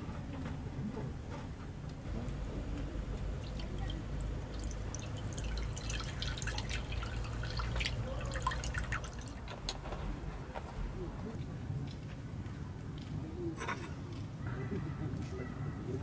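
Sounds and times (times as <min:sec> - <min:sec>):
liquid splashing into pot: 0:03.3 - 0:09.8.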